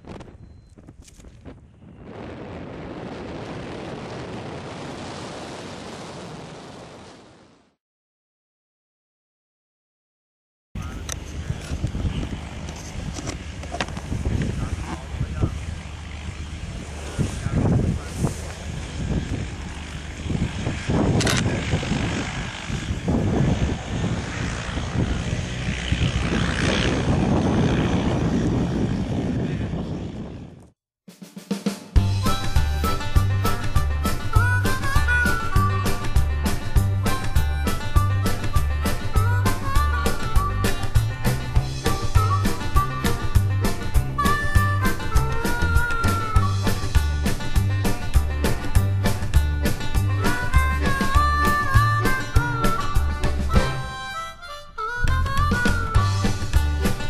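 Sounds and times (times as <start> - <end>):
wind rushing across microphone: 0.0 - 7.7, 11.0 - 30.7.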